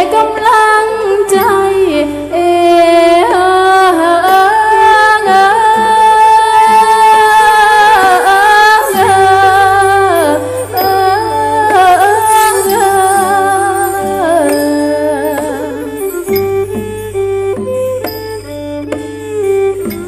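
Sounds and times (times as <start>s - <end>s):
person singing wavering melody: 0.0s - 20.0s.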